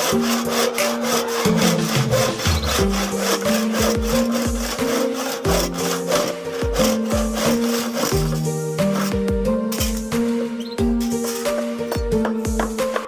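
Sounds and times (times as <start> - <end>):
hand saw cutting wood: 0.0 - 10.3
background music with steady beat: 0.0 - 13.0.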